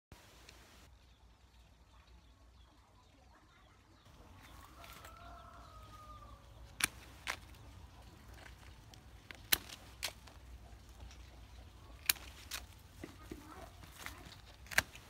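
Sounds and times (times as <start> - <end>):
pruning shears snipping: 4.4 - 15.0.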